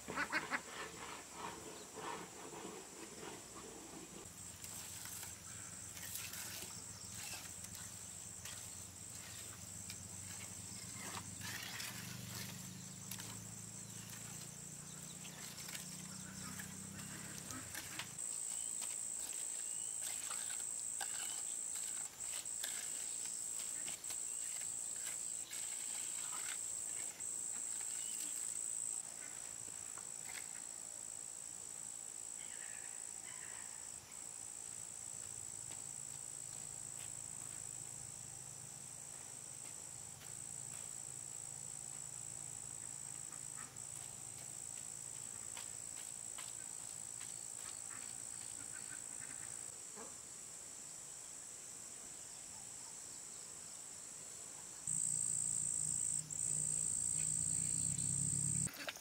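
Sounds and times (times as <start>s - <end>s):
insects chorus: 0.0s - 59.0s
trowel scraping wet concrete: 4.6s - 13.4s, 15.3s - 29.0s.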